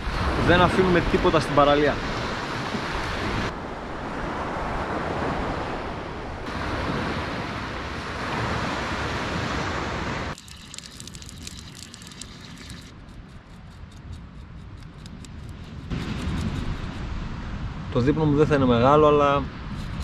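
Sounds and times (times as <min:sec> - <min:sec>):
sea waves washing on shore: 0:00.0 - 0:13.0
wind on microphone: 0:00.0 - 0:20.0.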